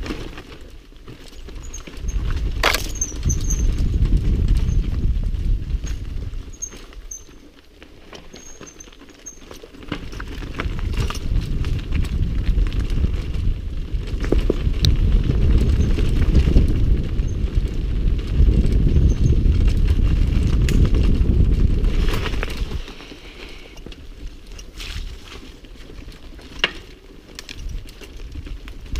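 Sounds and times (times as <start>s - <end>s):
bike rattling over rocks: 0.0s - 28.9s
wind buffeting microphone: 1.6s - 6.7s, 10.3s - 25.4s.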